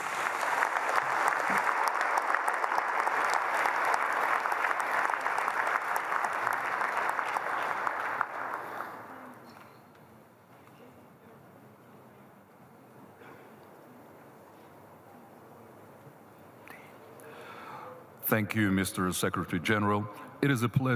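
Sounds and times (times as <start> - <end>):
large audience clapping: 0.0 - 9.5.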